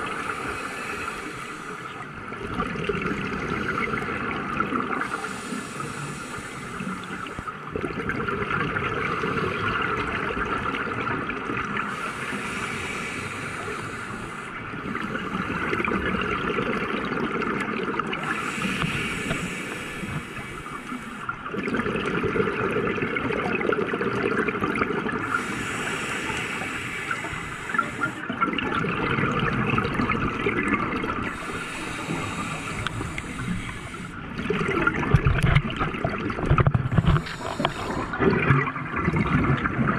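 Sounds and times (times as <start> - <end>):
regulator inhale hiss: 0.0 - 2.1, 5.0 - 7.6, 11.9 - 14.7, 18.2 - 21.4, 25.2 - 28.3, 31.3 - 34.3, 36.9 - 38.2
exhaled bubbles gurgling: 0.0 - 39.9.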